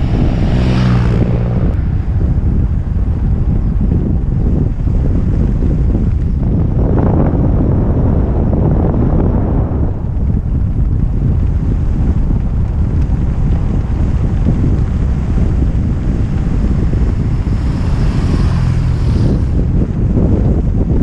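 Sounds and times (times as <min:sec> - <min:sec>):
vehicle passing: 0:00.0 - 0:03.2, 0:15.0 - 0:20.0
wind buffeting microphone: 0:00.0 - 0:21.0.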